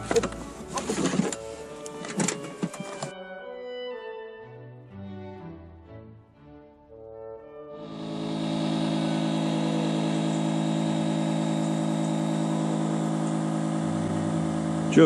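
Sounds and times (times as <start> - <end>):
engine idling: 7.8 - 15.0.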